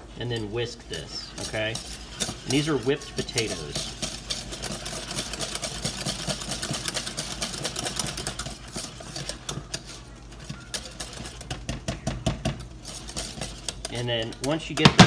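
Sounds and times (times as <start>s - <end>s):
wire whisk beating in a metal pot: 0.0s - 15.0s.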